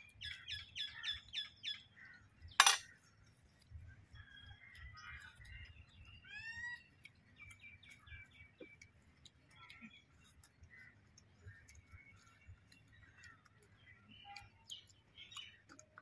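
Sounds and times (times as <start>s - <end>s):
birds chirping and calling: 0.0s - 3.2s, 4.1s - 8.9s, 9.5s - 16.0s.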